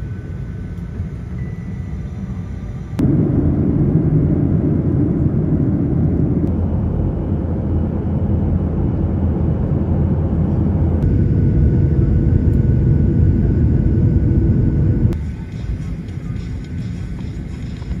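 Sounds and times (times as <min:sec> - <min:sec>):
faint steady whine: 0:00.0 - 0:18.0
jet engine cabin rumble: 0:00.0 - 0:18.0.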